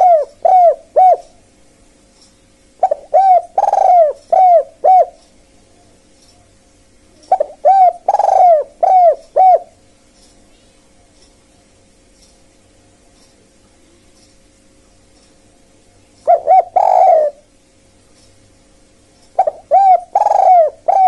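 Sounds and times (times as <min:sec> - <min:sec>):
dove cooing: 0:00.0 - 0:01.4, 0:02.8 - 0:05.3, 0:07.2 - 0:09.8, 0:16.2 - 0:17.5, 0:19.4 - 0:21.0.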